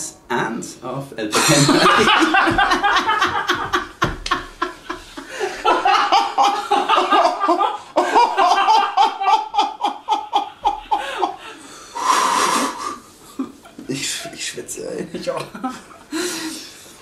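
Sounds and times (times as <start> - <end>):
man laughing: 1.3 - 11.5.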